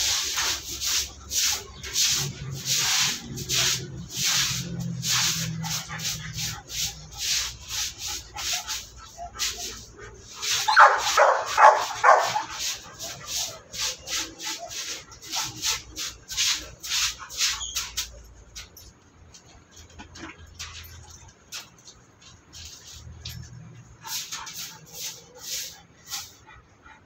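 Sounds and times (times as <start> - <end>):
brush scrubbing strokes: 0.0 - 18.8, 20.8 - 26.8
dog barking: 10.6 - 12.6.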